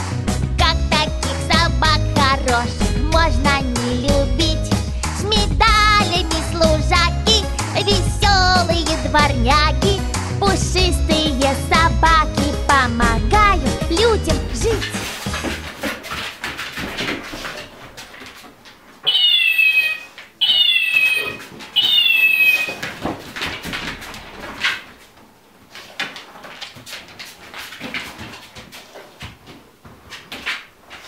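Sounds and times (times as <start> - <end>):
electronic toy meowing: 19.1 - 22.8.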